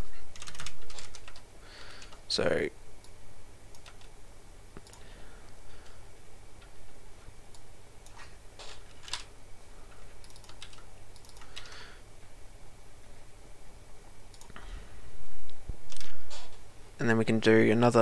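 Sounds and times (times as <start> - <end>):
typing on computer keyboard: 0.4 - 1.4, 3.7 - 4.1, 10.2 - 11.9.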